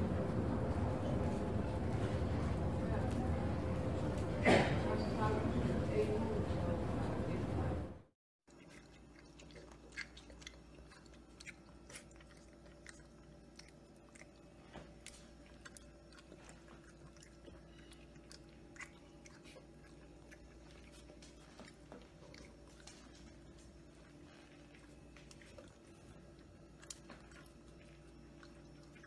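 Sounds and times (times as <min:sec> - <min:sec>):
low steady hum: 0:00.0 - 0:29.0
puppy lapping water: 0:08.5 - 0:29.0.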